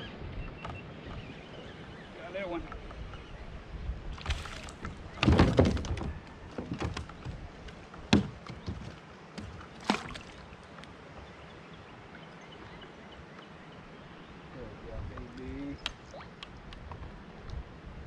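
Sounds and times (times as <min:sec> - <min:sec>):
gear knocking on kayak hull: 0:04.8 - 0:10.1.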